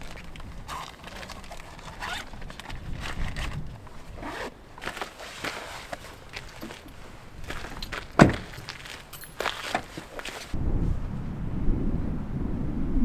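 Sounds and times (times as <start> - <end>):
bags rustling: 0.0 - 10.6
zipper being pulled: 0.7 - 6.8.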